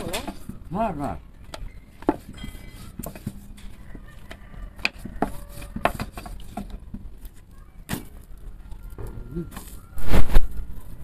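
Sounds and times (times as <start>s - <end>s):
rolling pin on wooden board: 4.8s - 7.0s.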